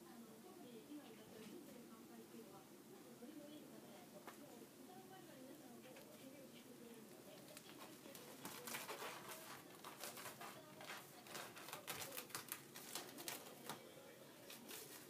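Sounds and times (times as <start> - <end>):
cat scratching claws: 7.4 - 13.7.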